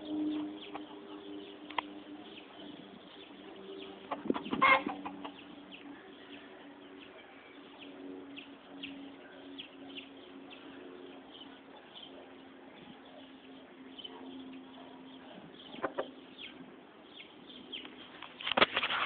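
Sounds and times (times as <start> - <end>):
low steady background tone: 0.0 - 18.6
chickens clucking: 3.8 - 5.9, 15.6 - 16.1
chicken squawk: 4.1 - 5.4.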